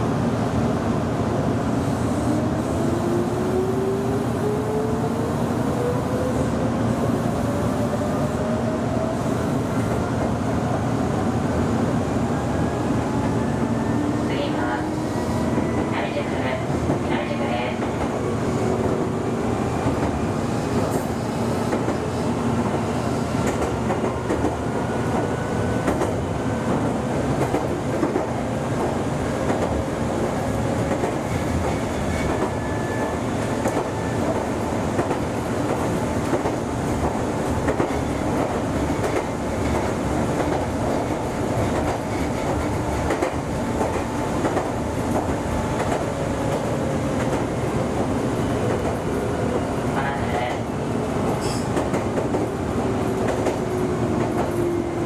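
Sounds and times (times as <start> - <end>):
wheels rumbling on rail: 11.9 - 55.0
rail joint clicks: 23.4 - 29.8, 30.8 - 47.6, 51.2 - 55.0.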